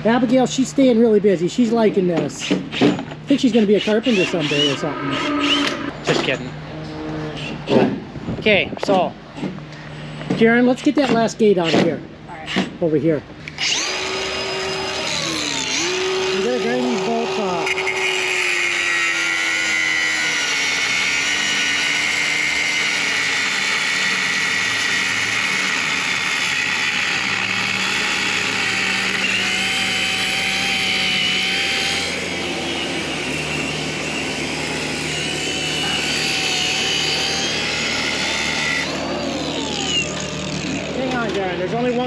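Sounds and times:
angle grinder cutting metal: 2.5s - 6.4s, 13.5s - 42.0s.

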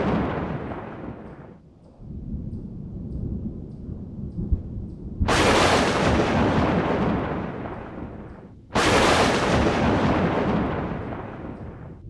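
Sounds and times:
sharp thunderclap: 0.0s - 1.6s, 4.4s - 12.0s
thunder rumbling: 0.0s - 12.0s.

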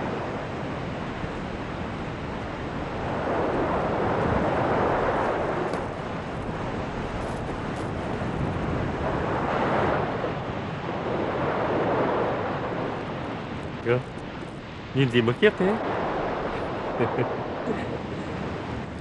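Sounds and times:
sea waves washing onto beach: 0.0s - 19.0s.

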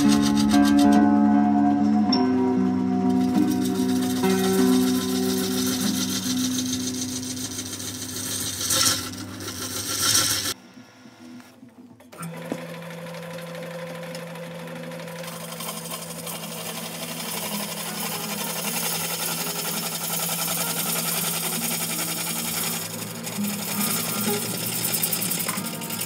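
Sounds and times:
rhythmic gouge chatter: 0.0s - 1.0s, 3.1s - 11.4s, 15.2s - 26.0s
wood lathe motor humming: 0.0s - 1.3s, 3.1s - 11.5s, 12.1s - 26.0s
gouge cutting wood hiss: 3.7s - 10.6s.

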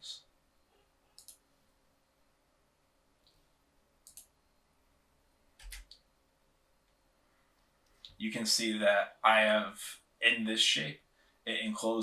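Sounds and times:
computer mouse clicks: 1.1s - 1.5s, 4.0s - 4.4s, 5.6s - 6.1s.

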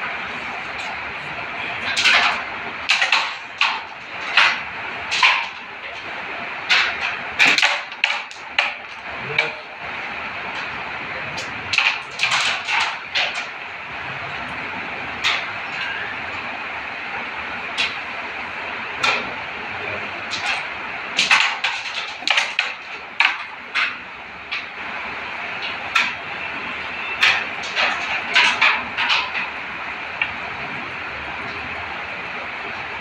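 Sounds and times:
carrom coins clacking: 11.4s - 13.5s, 21.2s - 24.0s.

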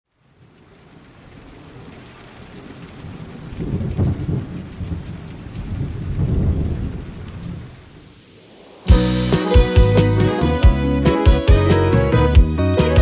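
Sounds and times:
steady rain: 0.0s - 13.0s
thunder rolling: 3.0s - 9.3s.

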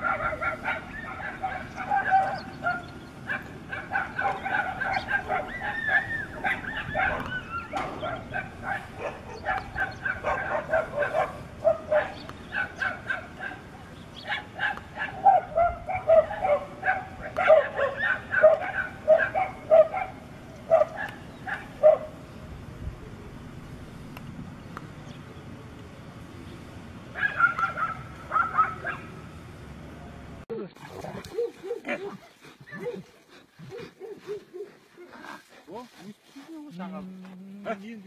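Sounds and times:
dogs barking and yelping: 0.0s - 22.2s, 27.1s - 29.2s, 31.0s - 35.5s.

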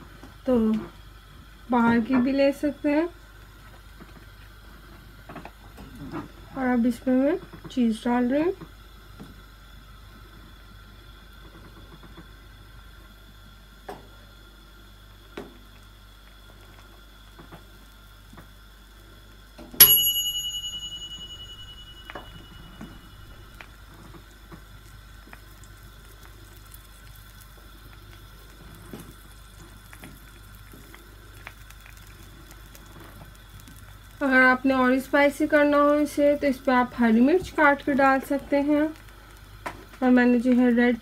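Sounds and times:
faint high whine and hum: 0.0s - 41.0s
sharp metallic ding: 19.8s - 23.6s.

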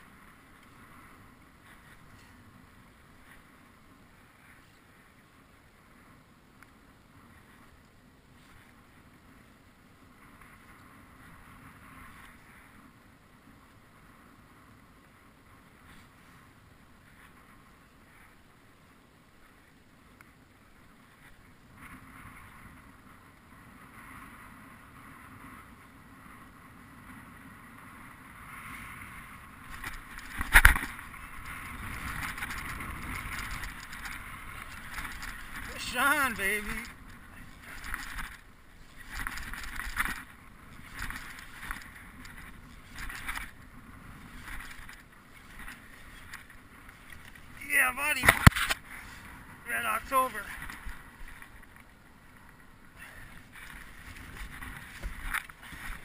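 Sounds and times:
wind on microphone: 21.1s - 49.7s
water lapping around boat: 50.5s - 56.0s.

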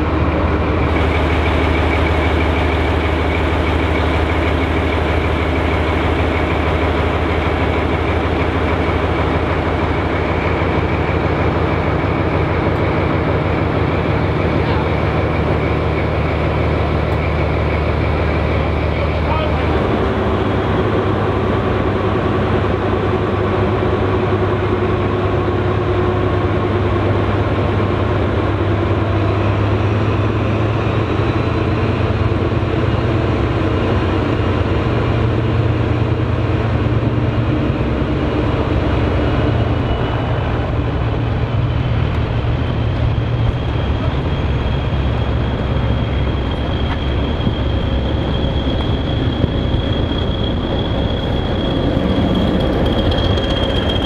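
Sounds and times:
diesel train engine: 0.0s - 54.0s
train coaches rumbling: 0.0s - 54.0s
thin high squeal: 45.4s - 54.0s.

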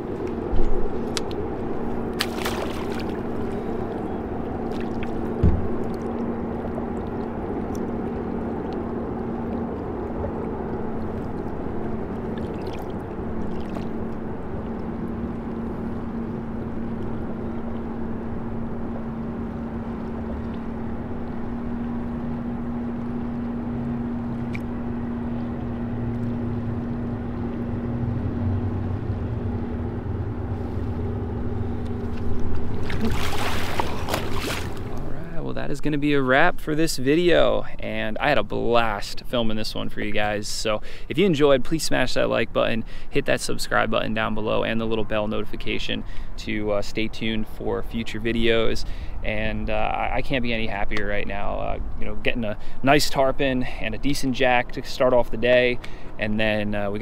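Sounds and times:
boat motor humming: 0.0s - 57.0s
deeper hum: 0.0s - 57.0s
thump: 5.4s - 5.7s.

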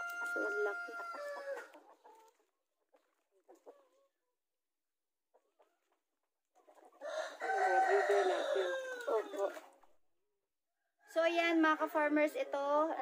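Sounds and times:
rooster crowing: 0.0s - 1.8s, 7.0s - 9.6s
chickens clucking: 0.0s - 4.5s, 5.2s - 9.8s.

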